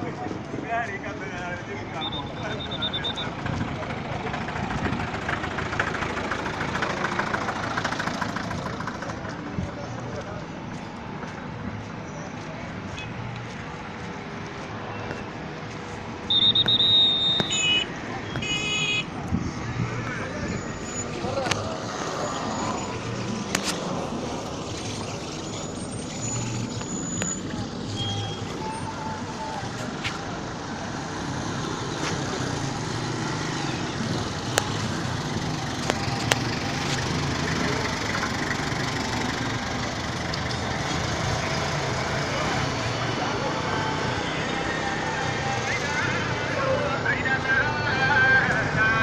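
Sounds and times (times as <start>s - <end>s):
road noise: 0.0s - 49.0s
vehicle engines humming: 0.0s - 49.0s
vehicle engine running: 2.6s - 11.9s, 31.8s - 44.3s.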